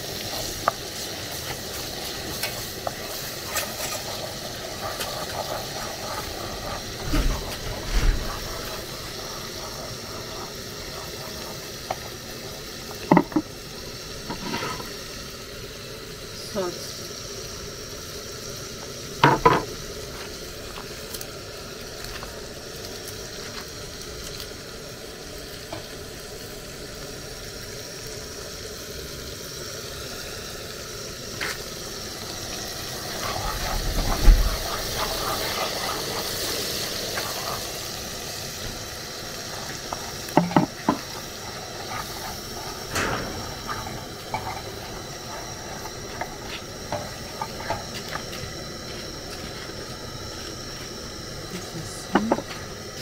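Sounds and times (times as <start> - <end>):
food sizzling: 0.0 - 53.0
utensil knocking against pot: 40.4 - 41.0
heavy thump: 42.9 - 44.5.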